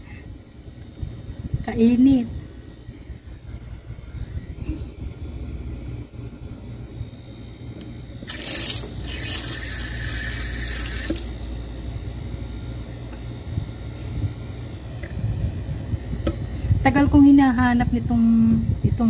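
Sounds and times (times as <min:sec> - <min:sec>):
low rumble: 0:00.0 - 0:08.3
water gushing from tap: 0:08.3 - 0:11.4.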